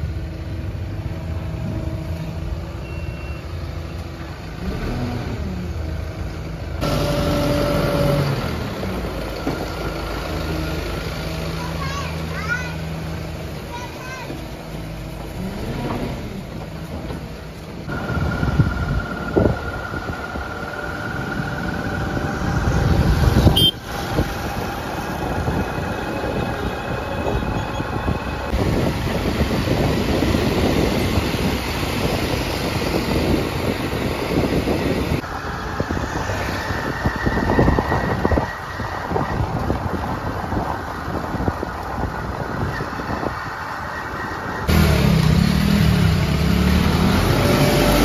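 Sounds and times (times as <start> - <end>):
diesel backhoe engine running: 0.0 - 30.9
tyre and road noise: 0.0 - 48.0.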